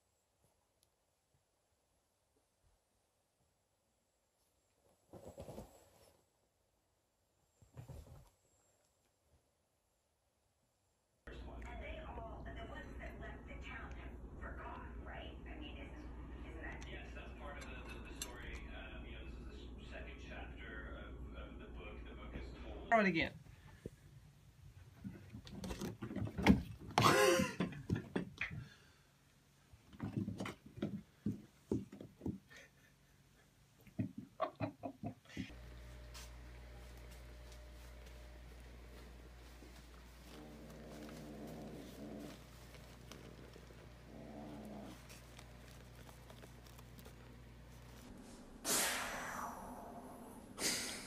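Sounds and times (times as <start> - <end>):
ball thumping on carpeted stairs: 29.9 - 32.5.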